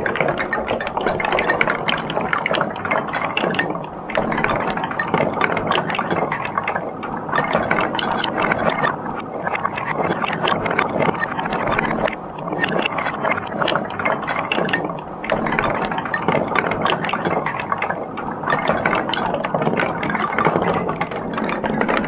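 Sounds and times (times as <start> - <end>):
balls clicking on wooden blocks: 0.0 - 6.6, 9.5 - 17.9.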